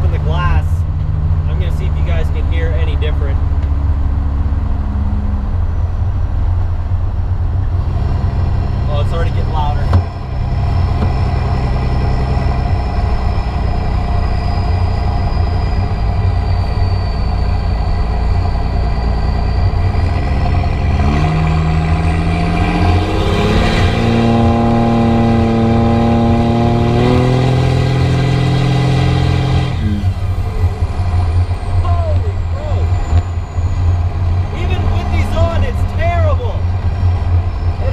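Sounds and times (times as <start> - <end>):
diesel truck exhaust drone: 0.0 - 37.9
high whistle: 10.2 - 21.5.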